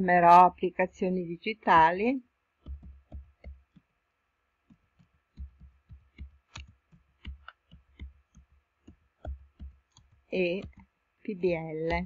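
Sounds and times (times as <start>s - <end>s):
keyboard keystrokes: 5.4s - 8.4s.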